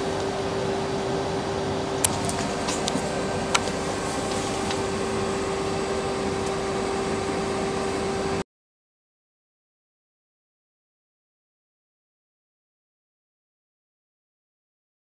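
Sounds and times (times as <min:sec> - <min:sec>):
machine humming and hissing: 0:00.0 - 0:08.4.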